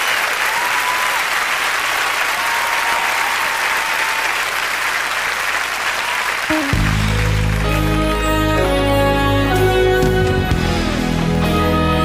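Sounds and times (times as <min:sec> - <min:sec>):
audience applauding: 0:00.0 - 0:08.8
music: 0:06.5 - 0:12.0.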